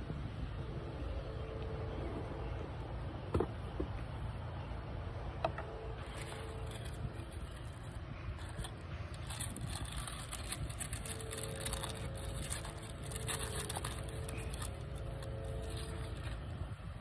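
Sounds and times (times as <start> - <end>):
faint steady hum: 0.0 - 17.0
steady low rumble: 0.0 - 17.0
paper and cloth rustling: 6.0 - 16.5.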